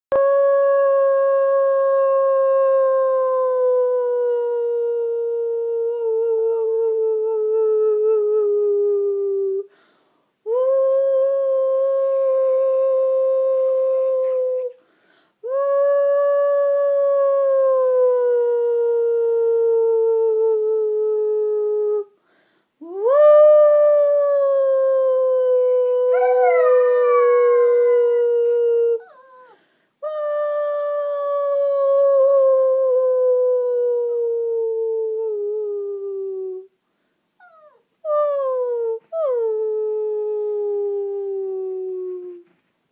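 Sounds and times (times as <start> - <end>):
dog howling: 26.0 - 29.6.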